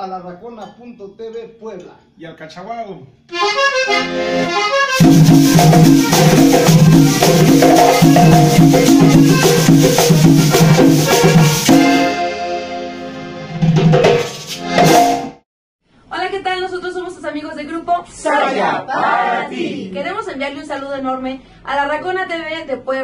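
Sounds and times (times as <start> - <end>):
accordion: 3.3 - 15.4
metal tube shaker: 5.0 - 11.7
drums: 5.0 - 12.2, 13.6 - 15.4.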